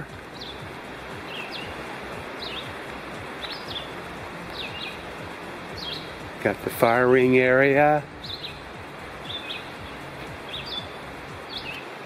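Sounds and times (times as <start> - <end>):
bird chirping: 0.0 - 6.6, 7.5 - 12.0
mountain river rushing: 0.0 - 12.0.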